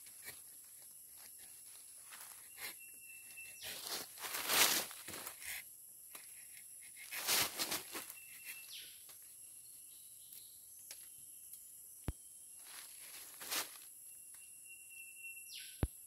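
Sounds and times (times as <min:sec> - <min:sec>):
knife scraping tree bark: 0:00.0 - 0:09.0
high insect drone: 0:00.0 - 0:15.8.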